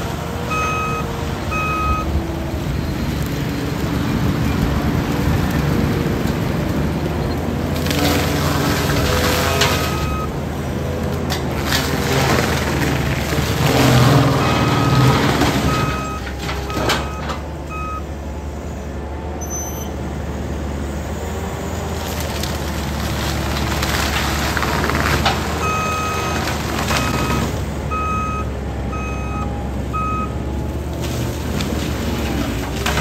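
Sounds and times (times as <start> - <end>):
track loader mulching brush: 0.0 - 33.0
backup alarm beeping: 0.5 - 2.1.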